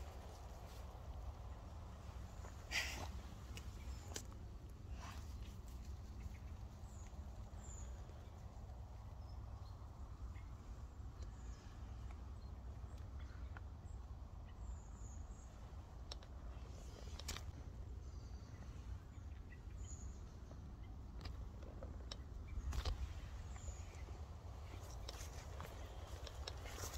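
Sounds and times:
low steady rumble: 0:00.0 - 0:26.9.

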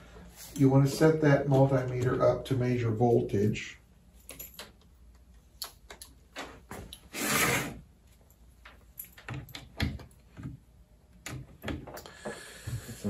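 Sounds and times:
light clicks and knocks handling leads: 0:04.2 - 0:07.0.

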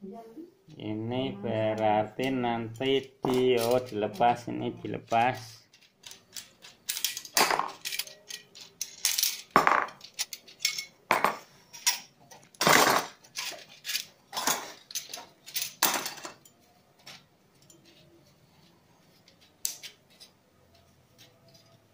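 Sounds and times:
metal tubes clinking together: 0:02.2 - 0:04.4, 0:05.1 - 0:18.1, 0:19.3 - 0:20.3.

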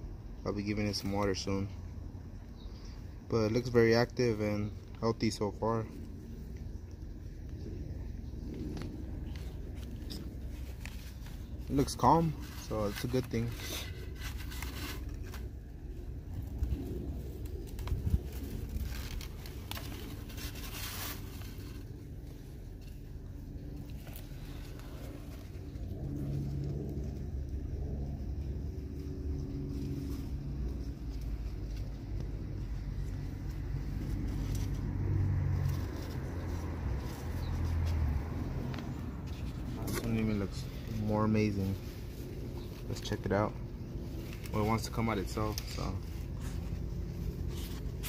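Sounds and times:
low engine-like rumble: 0:00.0 - 0:48.0
packing paper rustling: 0:08.6 - 0:26.6.

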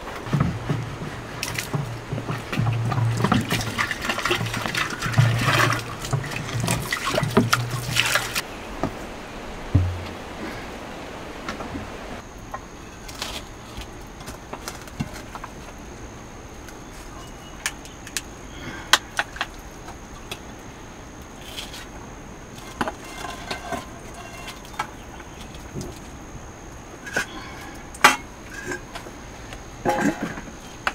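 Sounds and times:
steady low hiss: 0:00.0 - 0:30.9
ladle clinking on steel plates: 0:29.8 - 0:30.5.

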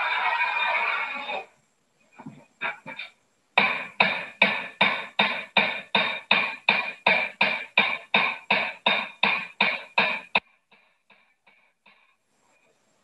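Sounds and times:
hammer ringing on hot rivet: 0:03.6 - 0:10.4.

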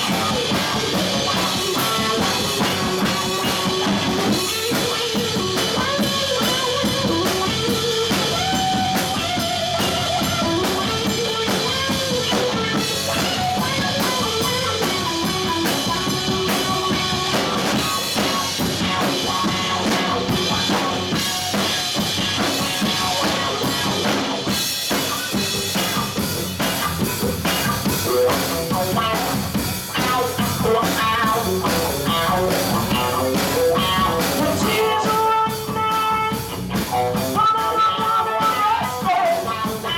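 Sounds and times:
bass guitar: 0:00.0 - 0:39.9
drum kit: 0:00.0 - 0:39.9
electric guitar: 0:00.0 - 0:39.9
woman singing: 0:34.4 - 0:35.8, 0:37.4 - 0:39.6.

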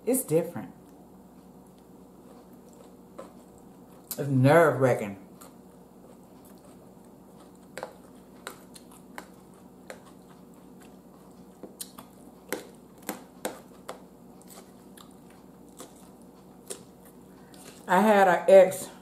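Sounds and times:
crunchy salad chewing: 0:00.9 - 0:04.3, 0:05.2 - 0:17.9.

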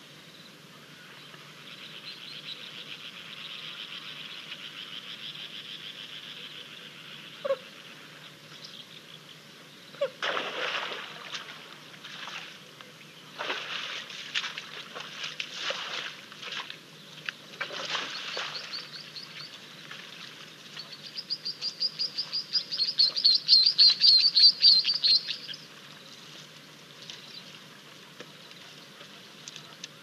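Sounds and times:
songbird singing high notes: 0:20.9 - 0:25.6.

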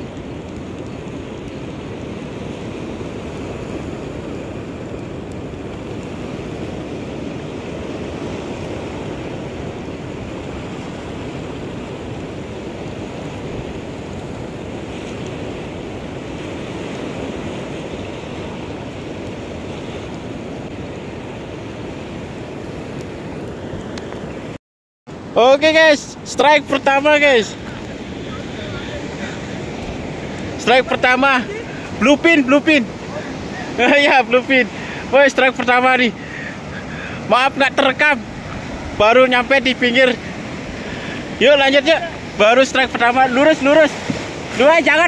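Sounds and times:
sea surf foaming around rocks: 0:00.0 - 0:45.0.

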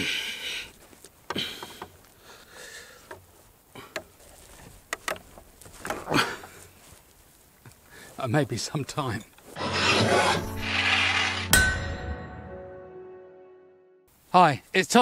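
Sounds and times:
sharp clicks and knocks: 0:04.9 - 0:06.0
wooden scrape: 0:09.4 - 0:11.8.

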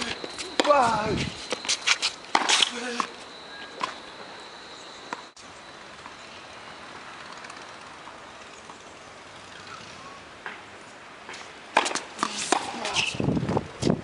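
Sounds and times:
tennis ball bouncing on hard court: 0:00.0 - 0:00.9, 0:11.3 - 0:13.1
steady outdoor hiss: 0:00.0 - 0:14.0.

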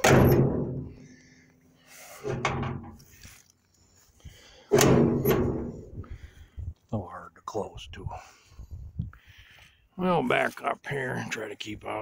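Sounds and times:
metal hood slamming shut: 0:00.0 - 0:01.0, 0:02.2 - 0:03.0, 0:04.7 - 0:05.8.

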